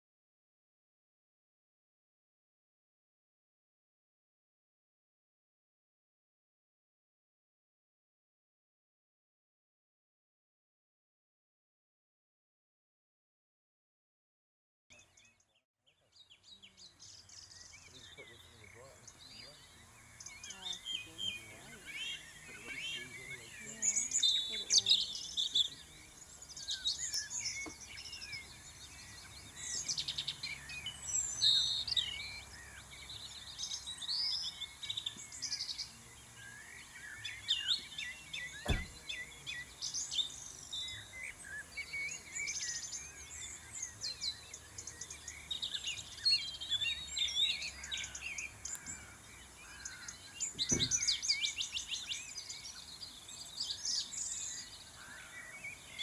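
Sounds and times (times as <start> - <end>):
songbirds singing and chirping: 14.9 - 56.0.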